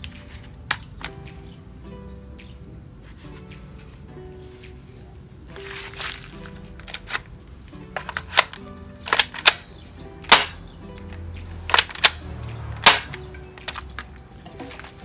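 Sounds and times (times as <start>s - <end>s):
rifle cocking clicks: 8.0s - 9.7s, 11.7s - 12.2s
airsoft rifle firing snaps: 8.1s - 10.6s, 11.7s - 12.2s, 12.8s - 13.2s.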